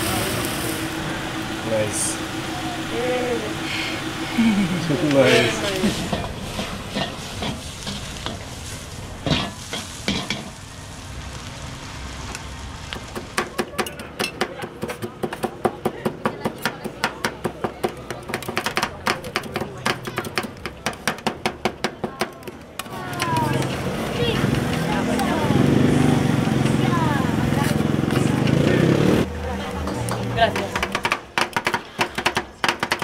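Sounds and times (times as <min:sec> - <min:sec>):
food sizzling in a pan: 0:05.7 - 0:13.4.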